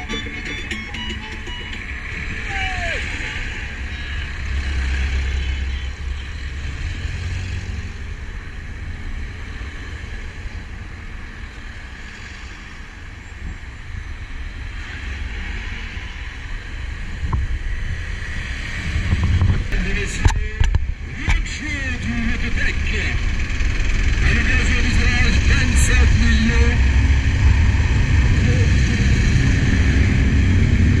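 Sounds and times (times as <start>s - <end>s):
truck passing: 0.0s - 10.7s, 20.8s - 31.0s
cars passing: 0.0s - 31.0s
wind buffeting microphone: 16.2s - 21.4s, 23.2s - 31.0s
motorcycle engine: 17.6s - 31.0s.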